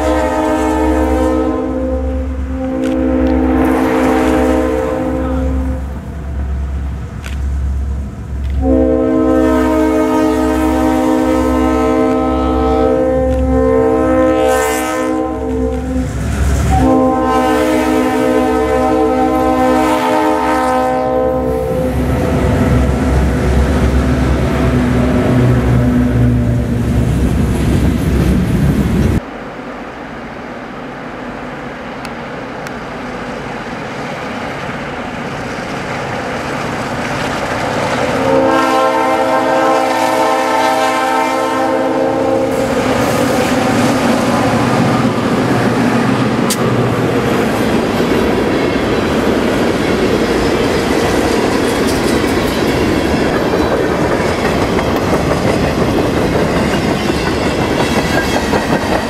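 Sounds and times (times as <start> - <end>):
train horn blast: 0.0 - 6.0, 8.6 - 27.0, 38.1 - 47.3
diesel freight train passing: 0.0 - 59.0
train wheels clacking on rail joints: 42.9 - 59.0.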